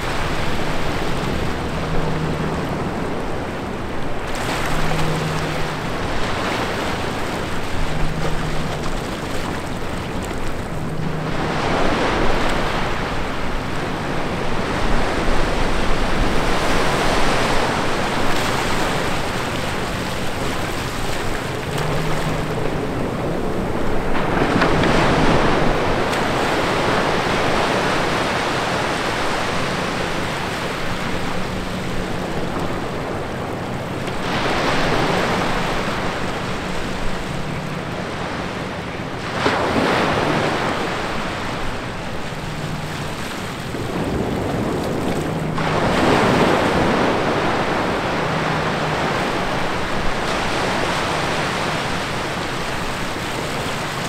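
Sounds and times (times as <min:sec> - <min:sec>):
small ocean waves breaking: 0:00.0 - 0:54.0.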